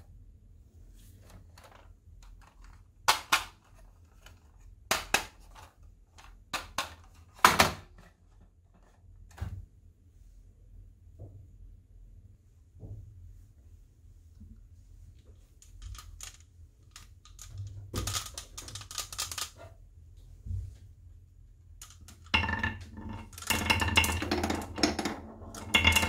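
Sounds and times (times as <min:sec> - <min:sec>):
plastic toy clatter: 0:01.3 - 0:07.6, 0:15.6 - 0:19.6, 0:21.8 - 0:26.0
plastic toy clicking: 0:15.8 - 0:19.6.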